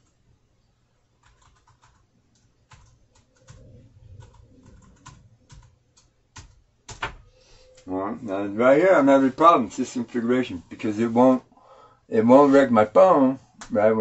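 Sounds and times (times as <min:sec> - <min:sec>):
faint keyboard typing: 0:01.0 - 0:07.9.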